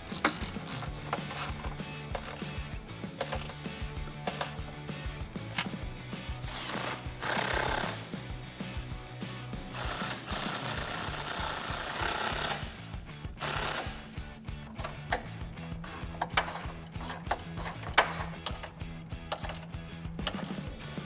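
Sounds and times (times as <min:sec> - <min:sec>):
ratchet wrench clicks: 0:00.0 - 0:02.6, 0:03.2 - 0:03.7, 0:04.3 - 0:04.7, 0:14.8 - 0:20.6
power driver spinning: 0:00.0 - 0:08.0, 0:14.7 - 0:21.0.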